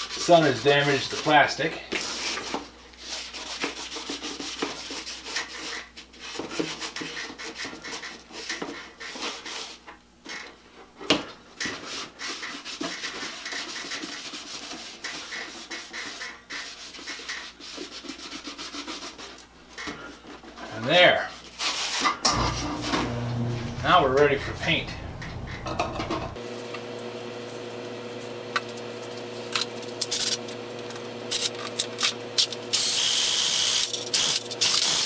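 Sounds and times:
rag scrubbing plastic: 11.7s - 19.4s.

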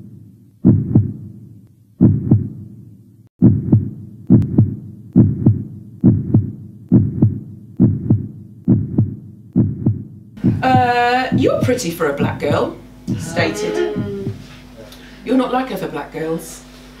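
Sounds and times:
heartbeat thumps: 0.0s - 1.4s, 2.0s - 2.7s, 3.4s - 14.8s.

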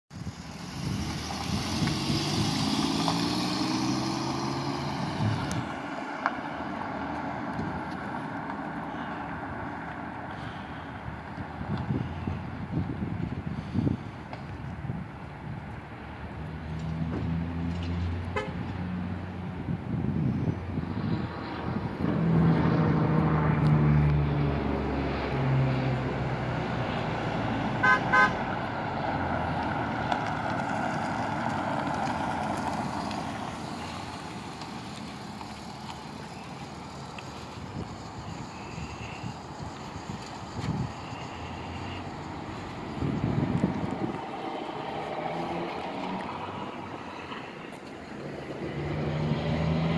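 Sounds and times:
van engine accelerating: 0.1s - 13.1s, 19.2s - 49.9s
horn toots: 18.3s - 18.7s, 27.8s - 28.5s
tyre noise: 29.3s - 49.9s.

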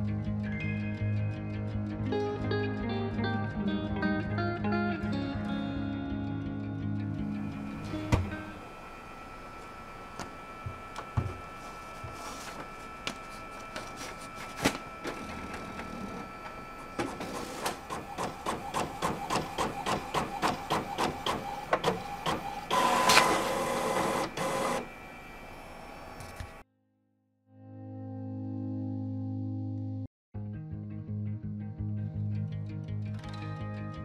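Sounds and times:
printer motor whirr: 7.3s - 26.6s
inkjet printer clicking: 17.0s - 24.9s.

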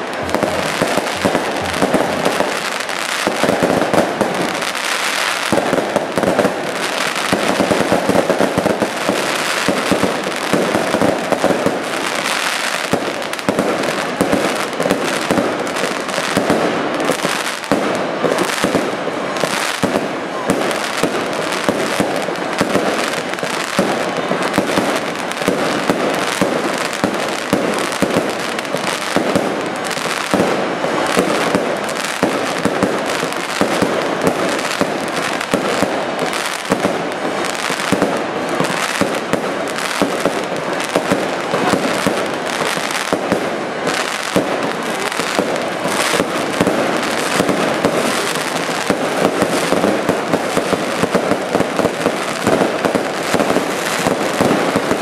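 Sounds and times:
firework shells bursting: 0.0s - 4.4s.

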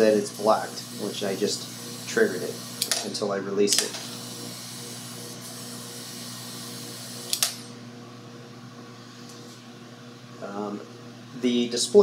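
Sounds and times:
vacuum pump humming: 0.0s - 12.0s
sharp click: 7.3s - 7.7s.

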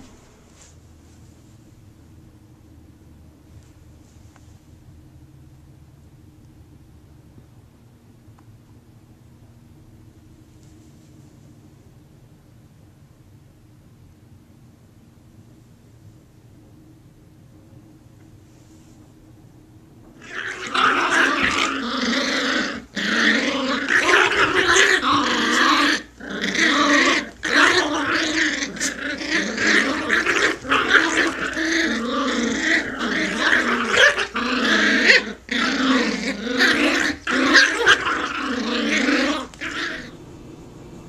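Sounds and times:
puppies growling in play: 0.0s - 1.0s, 20.0s - 41.0s.

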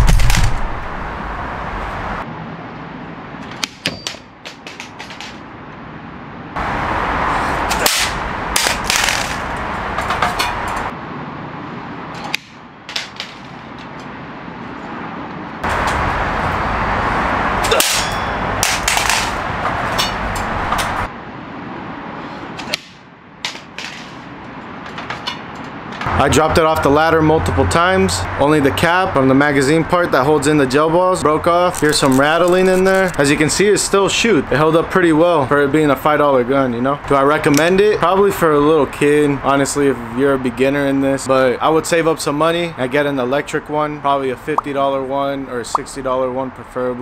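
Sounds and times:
plastic toy clattering on concrete: 3.5s - 5.4s, 8.0s - 10.5s, 12.4s - 14.0s, 18.6s - 19.4s, 23.5s - 24.2s.

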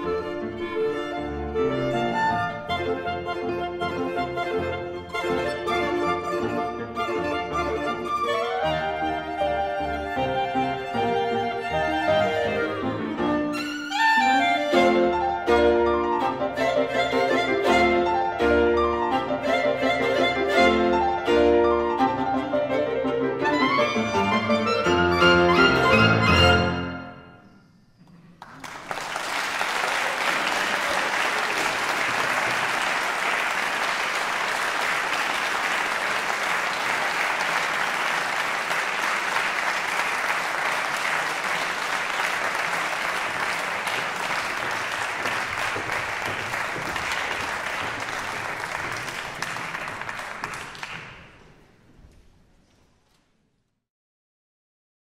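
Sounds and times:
violin clarinet and piano chord: 0.0s - 27.2s
audience applauding: 28.4s - 51.6s.

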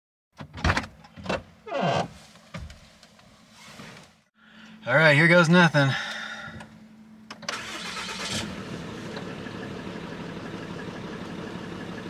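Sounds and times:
diesel engine idling: 5.9s - 12.0s
diesel engine cranking: 7.3s - 12.0s.

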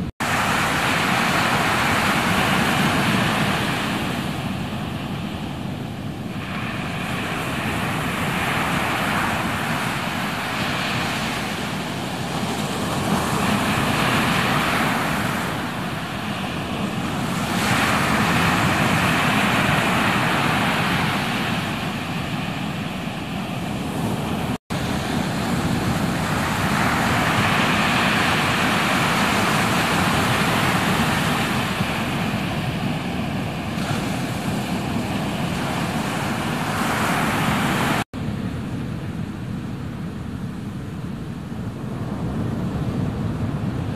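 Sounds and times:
ocean surf breaking: 0.0s - 43.9s.

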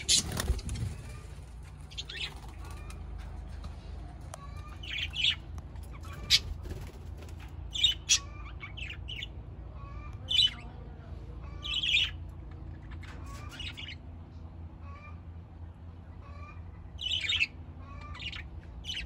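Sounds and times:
budgerigars chattering: 0.0s - 1.2s, 1.9s - 3.0s, 4.4s - 6.7s, 7.7s - 10.7s, 16.1s - 19.0s.

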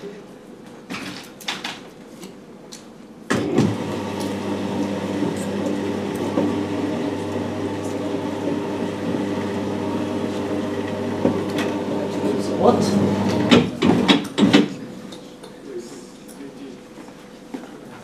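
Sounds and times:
electric motor humming: 3.4s - 14.2s.

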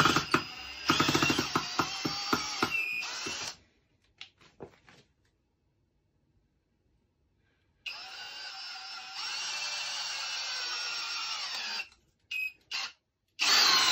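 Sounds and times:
cordless drill driving screw: 0.0s - 3.6s, 7.9s - 12.0s, 12.7s - 13.9s.

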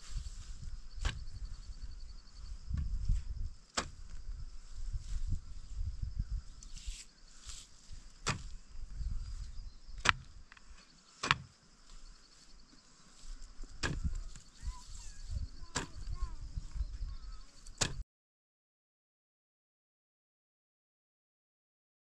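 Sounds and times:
steady high hiss: 6.5s - 9.6s.

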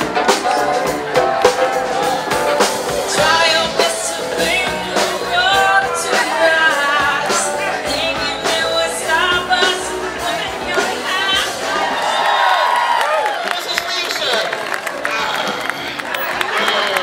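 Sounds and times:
steady drum beat: 0.0s - 11.9s
person singing: 0.0s - 12.2s
blues band over loudspeakers: 0.0s - 17.0s.

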